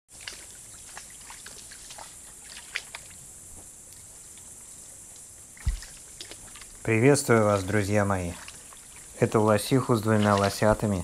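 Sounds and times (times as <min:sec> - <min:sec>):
water splashes and drips: 0:00.1 - 0:03.3, 0:05.1 - 0:11.0
steady high hiss: 0:01.9 - 0:11.0
low thump: 0:05.6 - 0:06.0.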